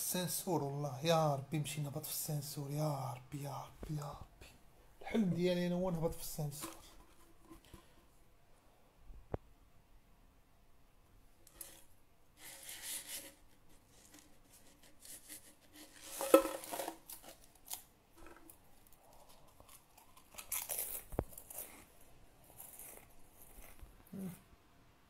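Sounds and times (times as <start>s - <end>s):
crisps crunching: 15.9s - 24.3s.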